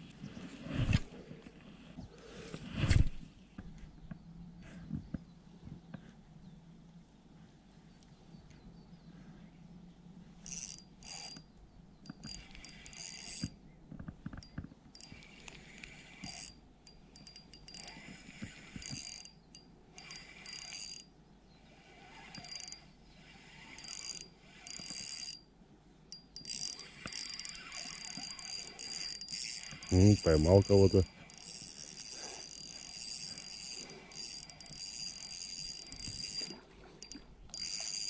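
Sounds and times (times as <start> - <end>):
fishing reel whirring: 10.4 - 11.4, 12.1 - 13.6, 15.0 - 21.1, 21.8 - 25.5, 26.1 - 38.0.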